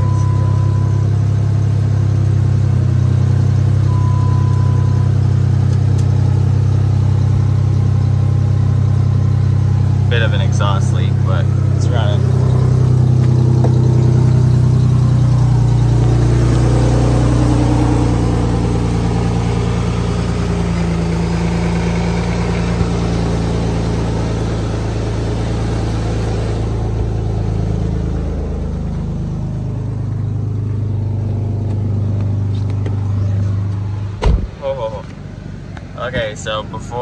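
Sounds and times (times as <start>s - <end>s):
car engine idling: 0.0s - 37.0s.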